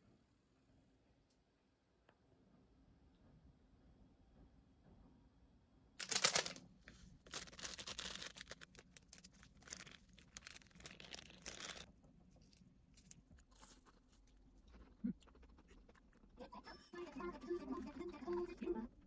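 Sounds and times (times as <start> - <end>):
packaging tearing and crinkling: 6.0 - 6.6, 7.2 - 11.9.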